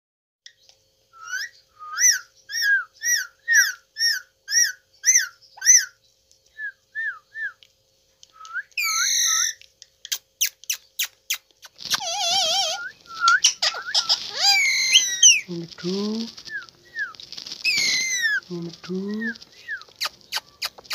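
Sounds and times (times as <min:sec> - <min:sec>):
parrot whistling: 0:01.2 - 0:06.0, 0:08.4 - 0:09.6, 0:11.9 - 0:15.5, 0:16.5 - 0:18.4
parrot squawk: 0:01.3 - 0:06.0, 0:08.8 - 0:09.6, 0:11.9 - 0:15.5, 0:17.6 - 0:18.4.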